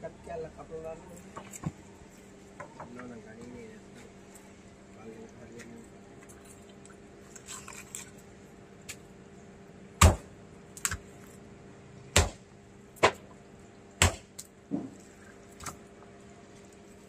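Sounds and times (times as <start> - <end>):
knife chopping fish on wood: 10.0 - 11.0, 12.1 - 12.4, 14.0 - 15.0.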